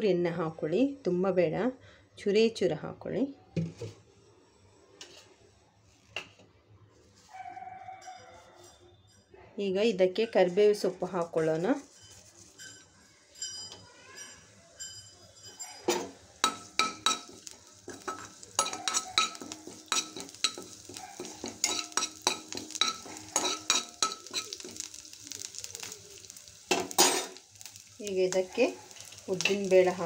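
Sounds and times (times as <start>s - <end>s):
leaves sizzling in hot oil: 10.0s - 30.0s
spatula scraping metal pan: 10.3s - 25.0s.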